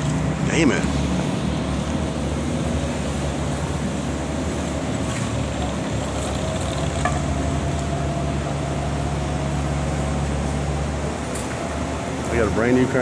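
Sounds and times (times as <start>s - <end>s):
crane engine running: 0.0s - 13.0s.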